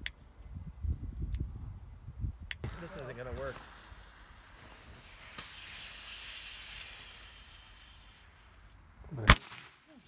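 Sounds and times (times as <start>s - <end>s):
firework fuse sputtering: 2.5s - 10.0s
firework bang: 2.6s - 8.5s.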